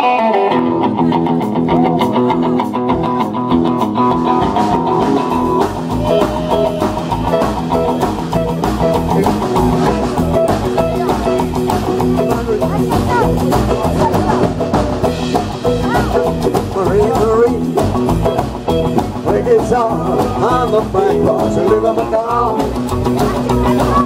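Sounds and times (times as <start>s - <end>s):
electric guitar through amp: 0.0s - 24.0s
upright double bass: 0.7s - 24.0s.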